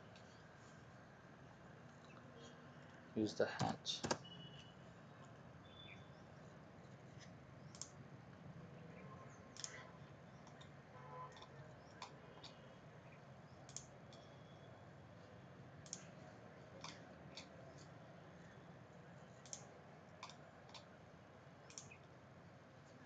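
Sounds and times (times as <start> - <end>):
computer mouse button clicks: 7.7 - 8.0, 9.6 - 9.8, 13.7 - 14.3, 21.7 - 22.0.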